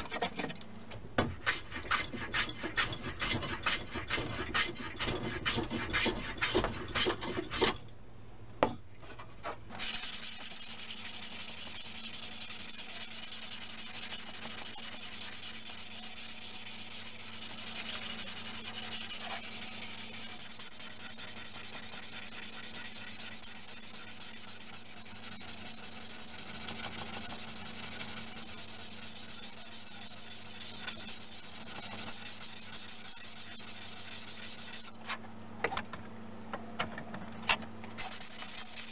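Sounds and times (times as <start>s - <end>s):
hand plane on wooden board: 1.4s - 7.8s, 9.7s - 35.0s, 38.0s - 38.9s
sandpaper rubbing wood: 9.7s - 35.0s, 38.0s - 38.9s.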